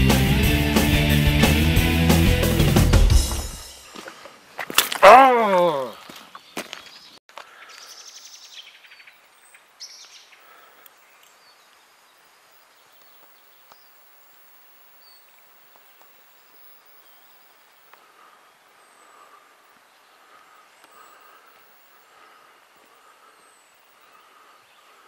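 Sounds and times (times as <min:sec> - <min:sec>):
songbirds singing: 0:05.7 - 0:25.0
quiet background hiss: 0:08.2 - 0:25.0.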